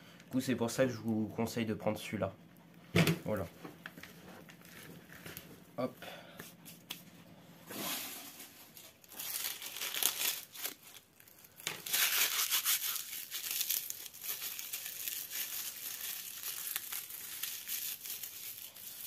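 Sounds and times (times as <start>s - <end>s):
dry leaves crushed by hand: 7.8s - 19.0s.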